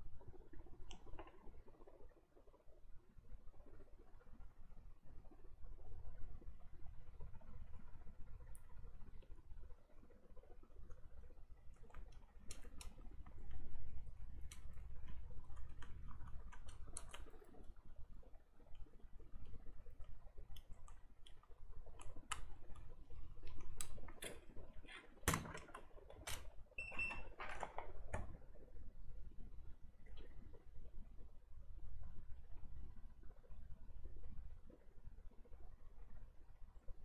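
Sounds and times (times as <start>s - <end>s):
circuit board clicks and rustles: 11.7s - 17.8s, 20.0s - 26.6s.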